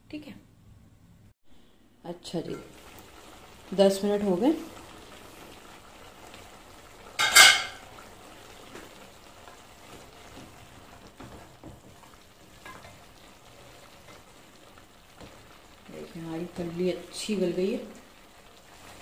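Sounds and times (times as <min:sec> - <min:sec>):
food sizzling in a pot: 0:02.1 - 0:19.0
wooden spoon stirring: 0:08.6 - 0:14.3.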